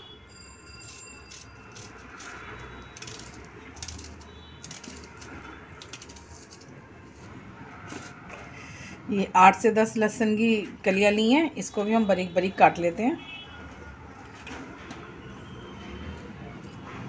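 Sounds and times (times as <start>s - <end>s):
knife cutting onion: 0.8s - 8.3s.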